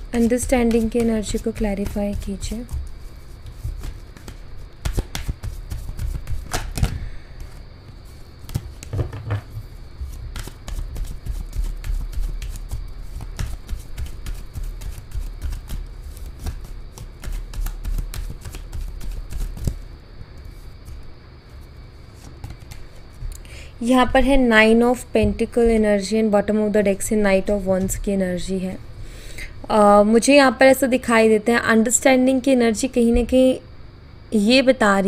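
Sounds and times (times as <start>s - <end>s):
cards being shuffled: 0.0s - 9.1s, 10.0s - 23.5s
low steady hum: 0.0s - 35.0s.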